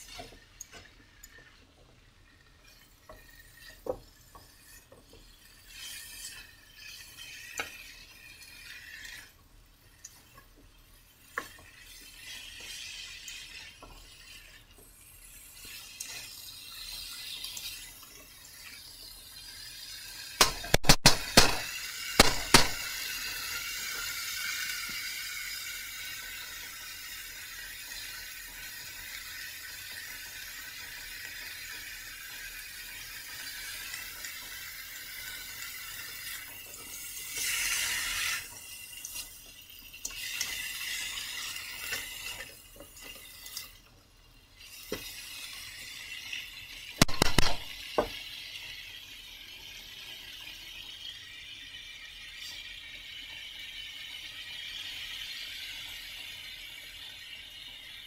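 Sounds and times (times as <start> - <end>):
food sizzling in a wok: 0.0 - 58.0.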